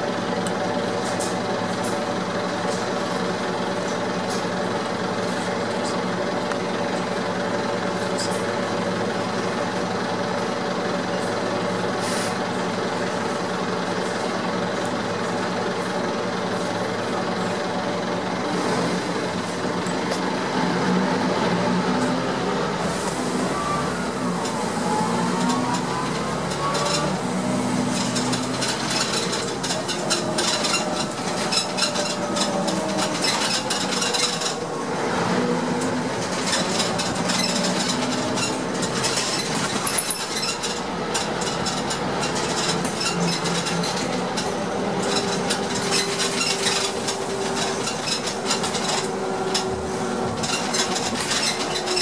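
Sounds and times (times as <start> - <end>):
bus drivetrain whine: 0.0 - 52.0
interior rattles and knocks: 26.2 - 34.7, 35.8 - 52.0.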